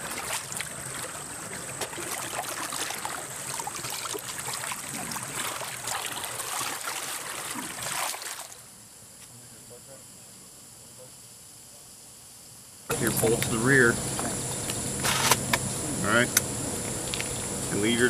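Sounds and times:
stream water rushing and splashing: 0.0 - 8.6
high-pitched whine: 12.9 - 18.0.

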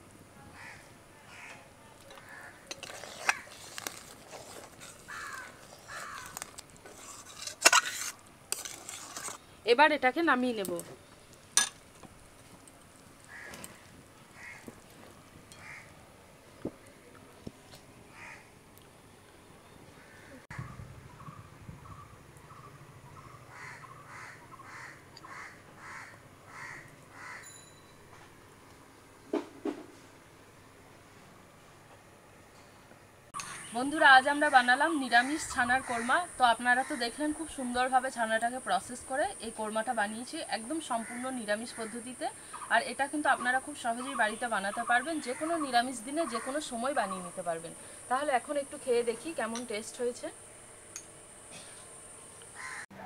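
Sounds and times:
crows cawing: 0.5 - 3.6, 5.0 - 6.5, 13.3 - 14.8, 15.5 - 16.0, 18.1 - 18.5, 20.0 - 21.3, 21.9 - 27.5, 41.0 - 42.7, 45.2 - 46.7, 52.5 - 52.9.

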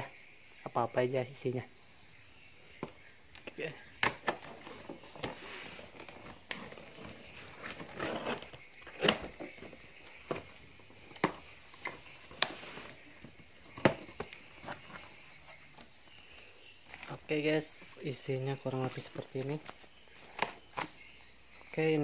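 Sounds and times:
packing tape tearing: 6.0 - 9.6.

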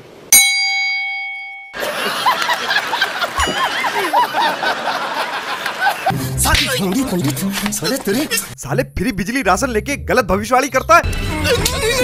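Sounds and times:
bell-like ding: 0.3 - 1.8, 3.4 - 4.1
high-pitched laughter: 1.8 - 8.6, 11.3 - 12.0.

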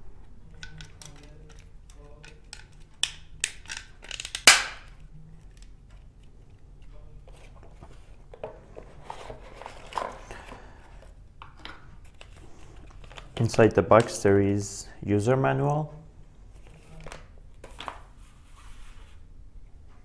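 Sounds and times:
plastic clicks: 0.5 - 6.1
paper and cardboard rustling: 6.8 - 11.1.

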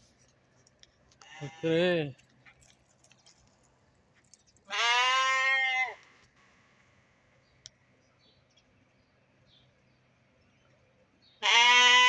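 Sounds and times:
sheep bleating: 1.2 - 1.8, 4.7 - 6.0, 11.4 - 12.0.

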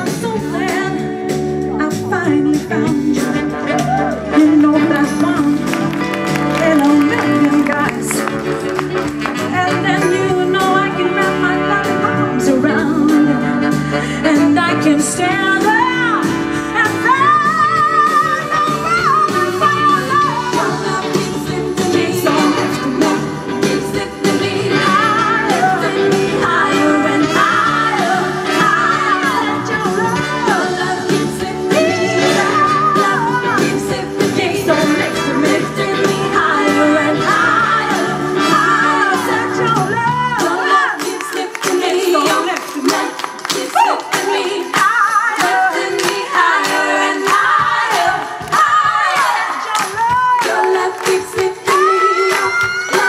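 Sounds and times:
woman singing: 0.0 - 8.5, 9.3 - 53.0
live soul band playing: 0.0 - 53.0
steady drum beat: 15.3 - 53.0.

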